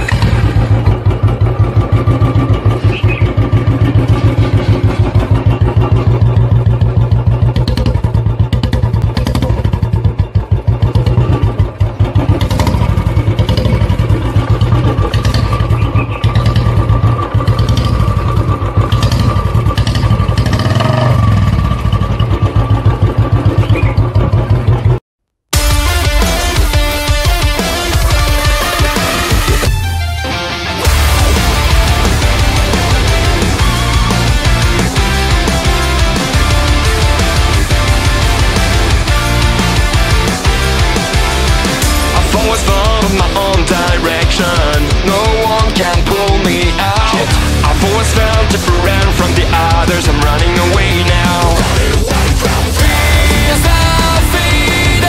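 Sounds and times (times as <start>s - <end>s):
motorcycle engine running: 0.0s - 55.0s
guitar music: 25.6s - 55.0s.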